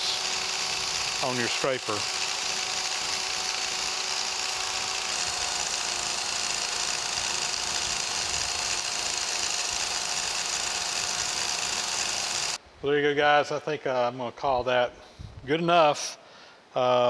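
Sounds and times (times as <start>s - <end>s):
electric power scraper buzzing: 0.0s - 12.6s.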